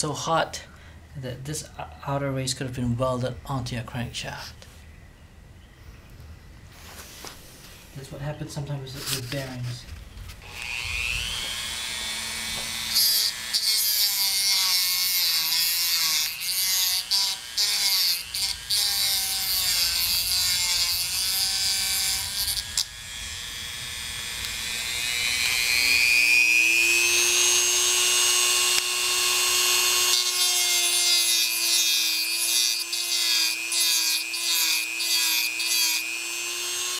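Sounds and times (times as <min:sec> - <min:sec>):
rotary tool whine: 0:10.2 - 0:36.9
cutting wheel grinding steel: 0:10.4 - 0:36.9.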